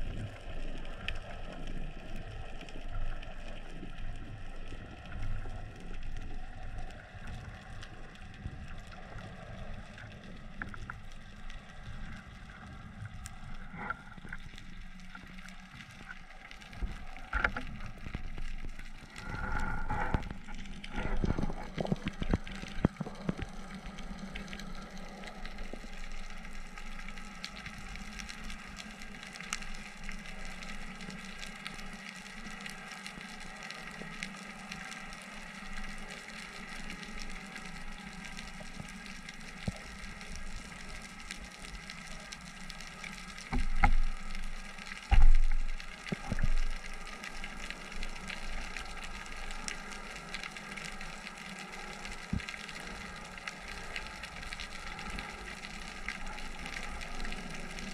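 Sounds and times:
faint clicks: 0:00.0 - 0:57.9
underwater hiss: 0:19.0 - 0:25.8.

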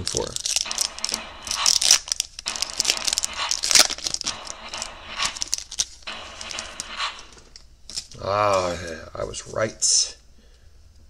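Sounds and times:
foil wrapper crinkling and tearing: 0:00.0 - 0:08.2
cards rustling in wrapper: 0:00.0 - 0:09.0.

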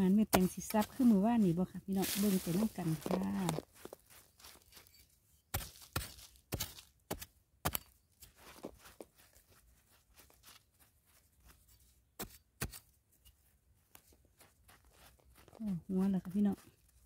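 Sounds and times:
metal blade scraping stony soil: 0:00.2 - 0:08.6, 0:11.6 - 0:13.4.

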